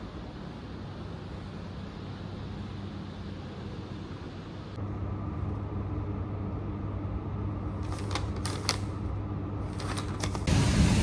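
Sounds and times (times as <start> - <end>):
low room hum: 0.0 - 11.0
paper rustling and clicks: 7.8 - 9.0, 9.6 - 10.5.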